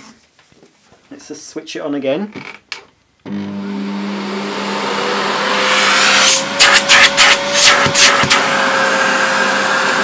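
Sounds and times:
vacuum cleaner motor whine: 0:03.3 - 0:10.0
rushes of air through suction: 0:05.5 - 0:08.5.

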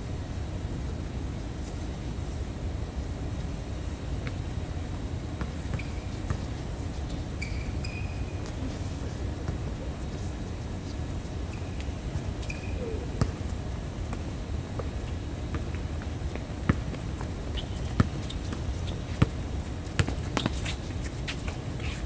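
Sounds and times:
low background hum: 0:00.0 - 0:22.0
basketball bouncing on court: 0:05.3 - 0:08.7, 0:11.5 - 0:20.8.

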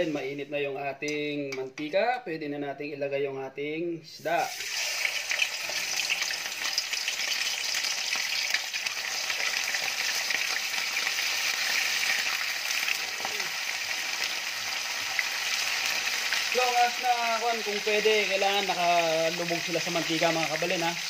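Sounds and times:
fish deep-frying in hot oil: 0:04.4 - 0:21.0.

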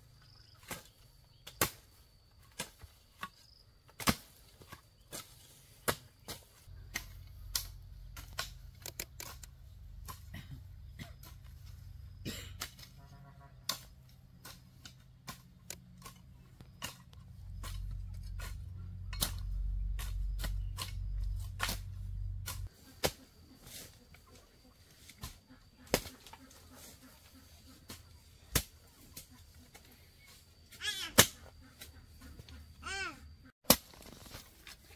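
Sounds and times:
low rumble: 0:17.2 - 0:22.6.

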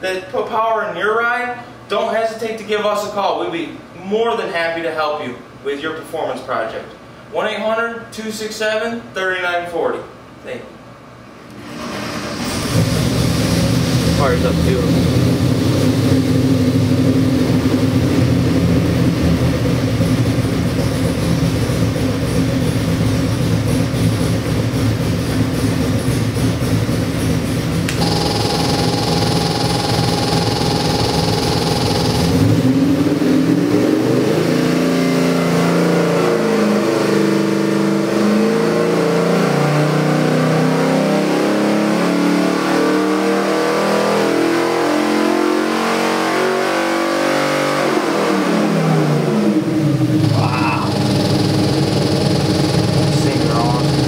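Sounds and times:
engine idling and revving: 0:12.3 - 0:54.0
high whine: 0:27.9 - 0:33.9, 0:49.9 - 0:54.0.

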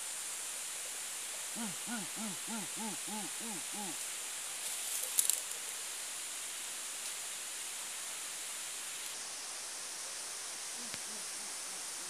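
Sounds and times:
steady hiss: 0:00.0 - 0:12.0
animal hooting calls: 0:01.6 - 0:04.0.

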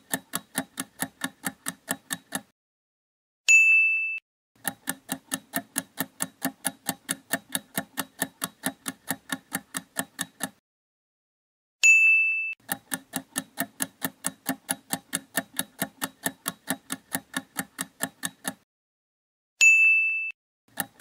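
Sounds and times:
clock ticking: 0:00.0 - 0:02.5, 0:04.6 - 0:10.6, 0:12.6 - 0:18.6, 0:20.7 - 0:21.0
bright bell ding: 0:03.5 - 0:04.2, 0:11.8 - 0:12.6, 0:19.6 - 0:20.3.

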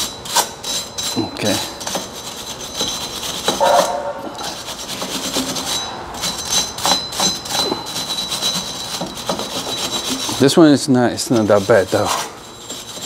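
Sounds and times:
wire brush scrubbing metal: 0:00.0 - 0:13.0.

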